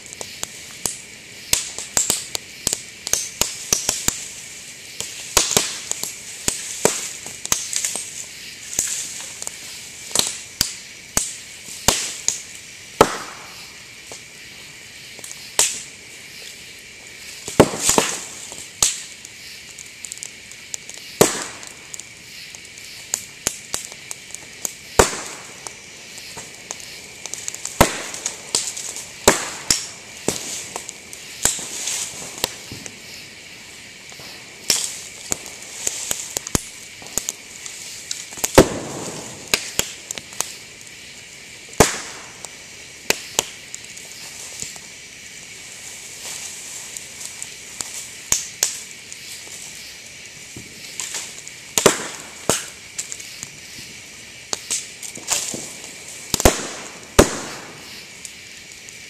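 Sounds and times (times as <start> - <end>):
bamboo popping and cracking in fire: 0.0 - 59.0
hiss of flames: 0.0 - 59.0.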